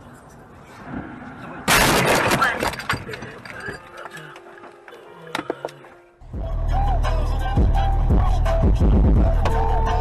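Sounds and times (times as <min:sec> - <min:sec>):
bass-heavy electronic music: 0:06.2 - 0:10.0.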